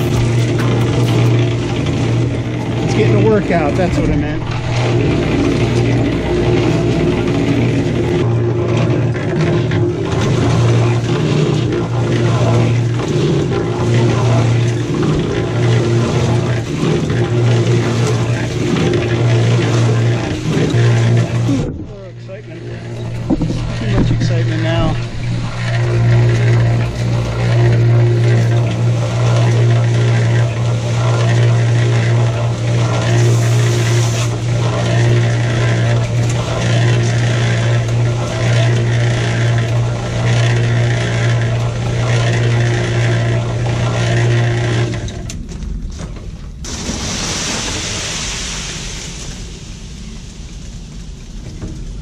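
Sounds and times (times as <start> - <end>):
scraping noise: 0.0 - 2.4, 13.5 - 41.4
cement mixer motor humming: 0.0 - 52.0
drum tumbling wet concrete: 0.0 - 52.0.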